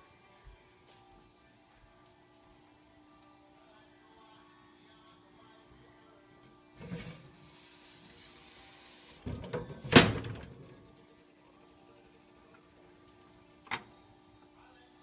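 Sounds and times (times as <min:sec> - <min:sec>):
cupboard door opening: 0:09.2 - 0:10.6.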